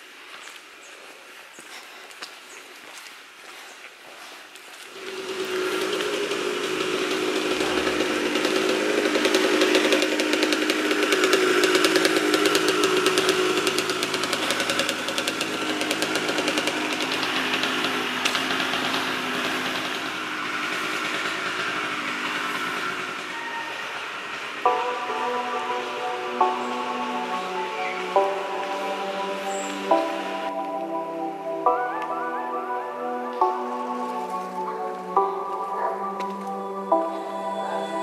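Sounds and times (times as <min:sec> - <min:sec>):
small engine running: 0:04.9 - 0:31.8.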